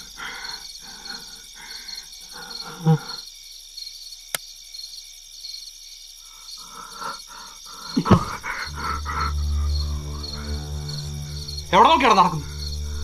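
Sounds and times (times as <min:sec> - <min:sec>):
crickets chirping: 0:00.0 - 0:13.0
low droning tone: 0:08.0 - 0:13.0.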